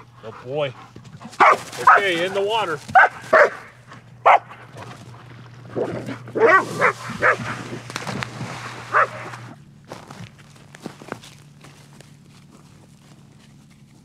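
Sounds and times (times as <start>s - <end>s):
dog barking and yipping: 1.2s - 2.3s, 2.9s - 4.9s, 5.7s - 7.6s, 8.9s - 9.5s.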